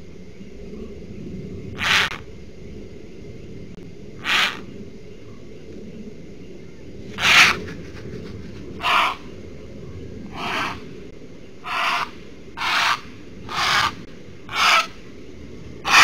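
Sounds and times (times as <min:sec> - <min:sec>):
steady low hiss: 0:00.0 - 0:16.0
animal rasping call: 0:07.2 - 0:07.6, 0:11.6 - 0:14.9.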